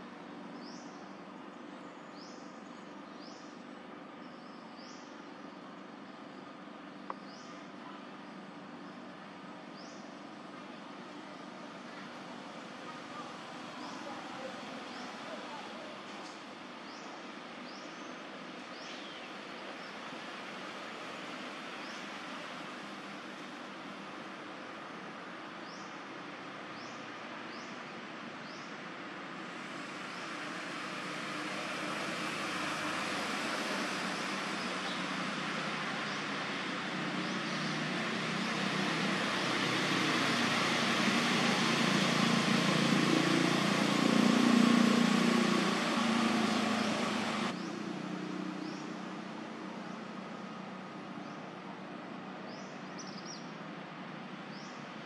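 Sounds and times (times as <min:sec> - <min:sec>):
motor vehicle passing: 0:29.6 - 0:49.3.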